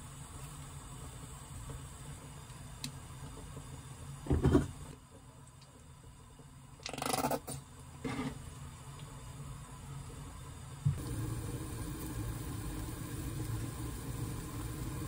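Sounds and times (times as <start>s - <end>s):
low steady hum: 7.7s - 15.0s.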